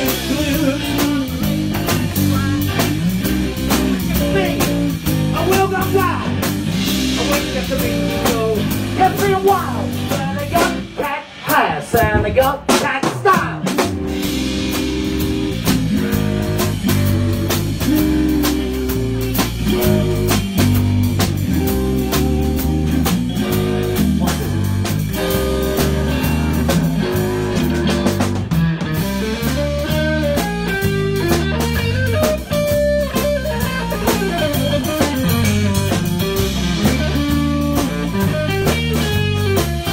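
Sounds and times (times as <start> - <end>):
bending guitar notes: 0.0 - 11.0, 13.7 - 39.9
electric guitar: 0.0 - 12.4, 13.6 - 39.9
drum kit: 0.0 - 39.9.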